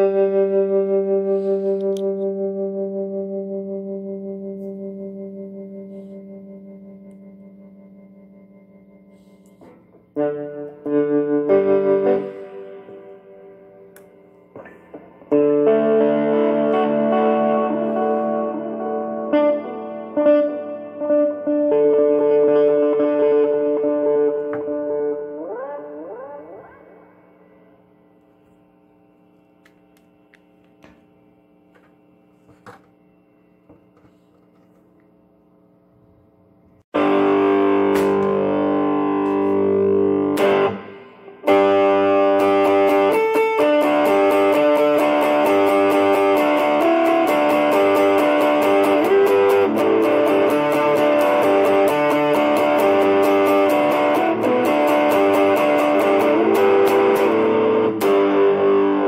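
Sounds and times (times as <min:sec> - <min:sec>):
guitar amplifier hum: 0:00.0 - 0:59.0.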